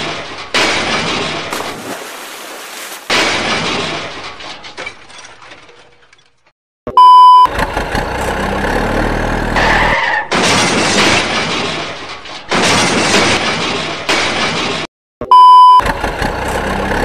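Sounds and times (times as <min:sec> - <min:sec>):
scraping and crunching on dirt: 0:01.5 - 0:03.2.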